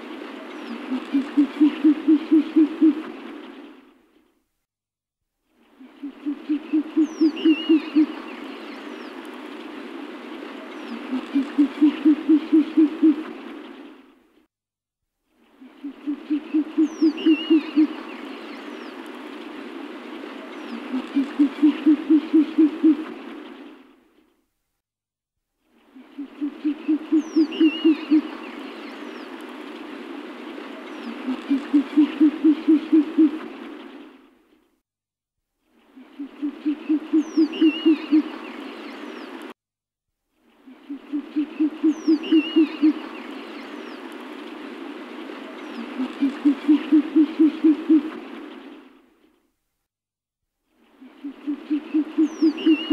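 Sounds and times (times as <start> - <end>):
background hiss: 0.0 - 4.6, 5.4 - 14.5, 15.2 - 24.4, 25.6 - 34.8, 35.6 - 39.6, 40.3 - 49.7, 50.6 - 52.9
owl hooting: 0.7 - 3.1, 5.8 - 8.3, 10.9 - 13.3, 15.6 - 18.2, 20.7 - 23.1, 26.1 - 28.4, 31.0 - 33.5, 36.0 - 38.4, 40.7 - 43.2, 45.7 - 48.2, 51.0 - 52.9
faint bird chirps: 5.5 - 9.2, 15.3 - 19.0, 25.7 - 29.4, 35.7 - 39.4, 40.4 - 44.1, 50.8 - 52.9.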